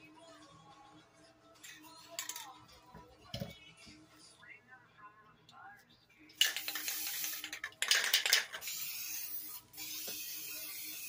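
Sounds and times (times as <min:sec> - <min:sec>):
spray can ball rattling: 0:06.4 - 0:11.0.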